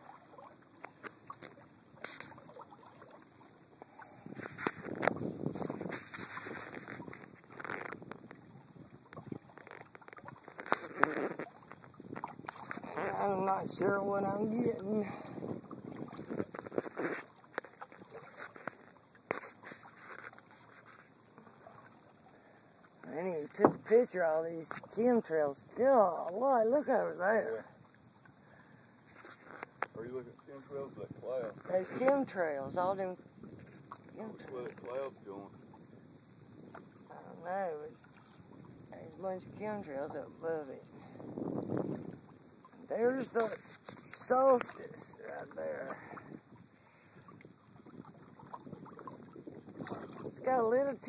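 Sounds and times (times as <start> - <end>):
water lapping around canoe: 0.0 - 51.0
water splashing: 0.0 - 51.0.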